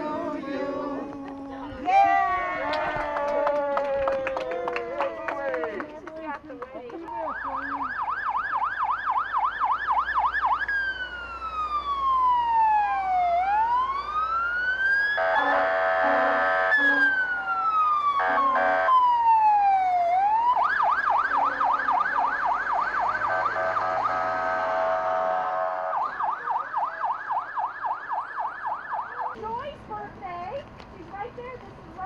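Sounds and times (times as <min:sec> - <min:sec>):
fire engine siren: 0:07.2 - 0:29.4
fire engine horn blasts: 0:15.2 - 0:17.4, 0:18.2 - 0:19.1, 0:21.2 - 0:22.2, 0:23.0 - 0:26.3.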